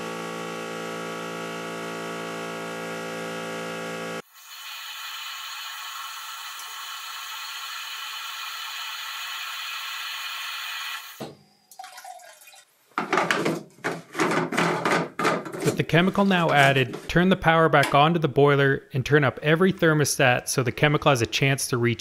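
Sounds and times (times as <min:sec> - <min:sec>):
water running into tank: 0:04.3 - 0:13.0
sharp knocks and clatters: 0:13.0 - 0:17.2.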